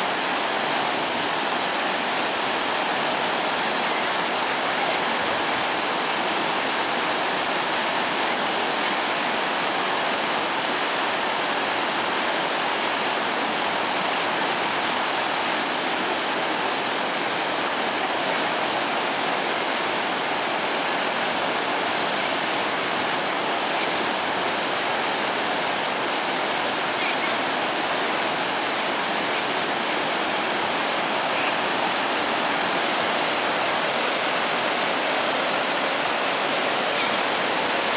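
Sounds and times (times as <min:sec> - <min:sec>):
floodwater rushing: 0:00.0 - 0:37.9.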